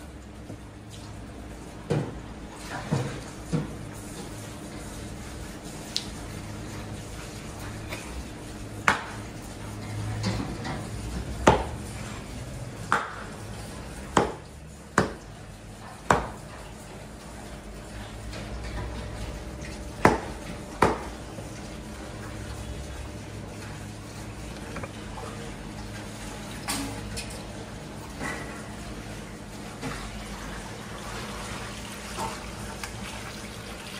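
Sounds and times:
cleaver chopping meat on wood block: 11.4 - 11.7, 14.1 - 15.2, 16.1 - 16.4, 20.0 - 21.1.

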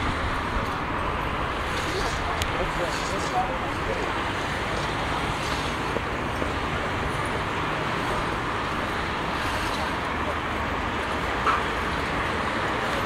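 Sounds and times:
excavator diesel engine rumble: 0.0 - 13.0
street traffic noise: 0.0 - 13.0.

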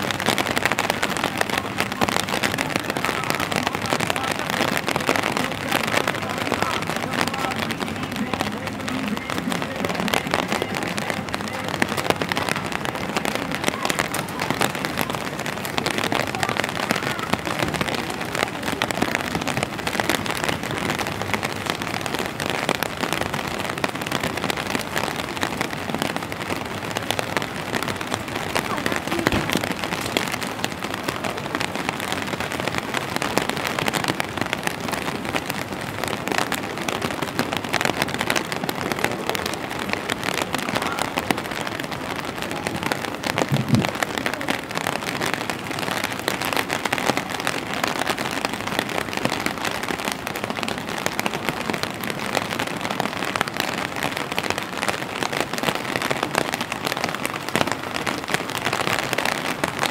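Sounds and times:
rain falling: 0.0 - 59.9.

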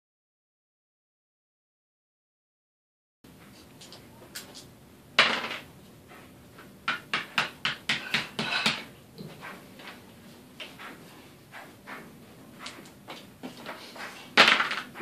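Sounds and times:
game pieces tapping on board: 6.8 - 8.9, 14.4 - 15.0.

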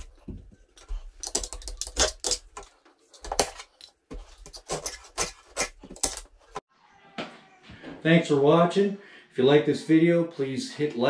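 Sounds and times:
knife clicking and scraping wood: 0.8 - 6.6.

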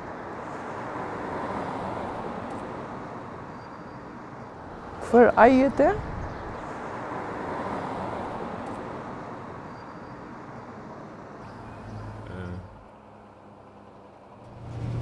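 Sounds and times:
vehicle passing: 10.7 - 15.0.

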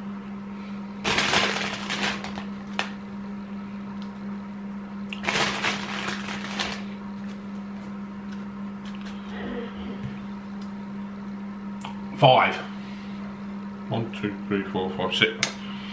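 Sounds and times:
packaging crinkling: 1.0 - 2.9, 5.2 - 6.9.

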